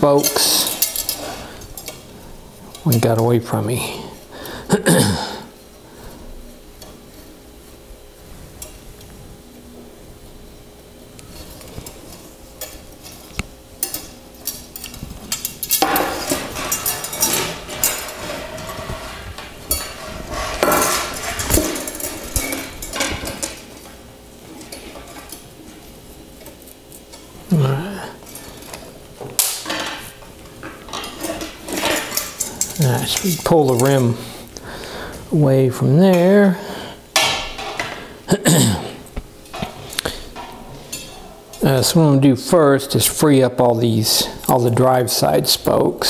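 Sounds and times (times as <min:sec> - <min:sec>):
bicycle spokes clinking and rattling: 0:11.9 - 0:25.5.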